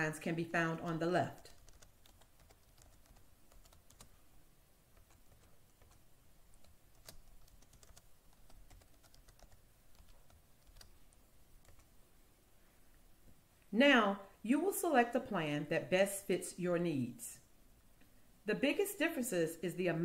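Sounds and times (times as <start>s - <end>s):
faint keyboard typing: 0.0s - 4.2s, 4.9s - 12.0s.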